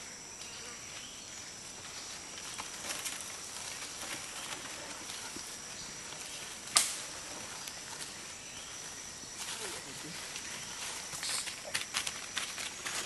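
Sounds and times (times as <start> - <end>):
insects droning: 0.0 - 13.0
dry leaves crackling: 1.7 - 13.0
sharp snap: 6.7 - 7.0.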